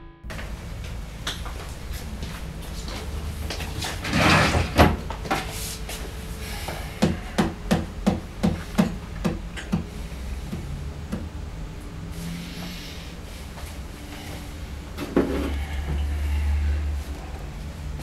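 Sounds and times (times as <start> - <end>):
scraping rustle: 1.5 - 7.3.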